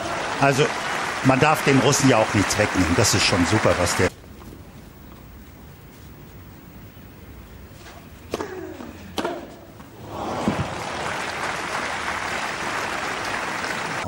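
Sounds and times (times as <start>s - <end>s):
crowd applauding: 0.0s - 4.1s, 10.0s - 14.0s
racket striking tennis ball: 8.3s - 9.6s.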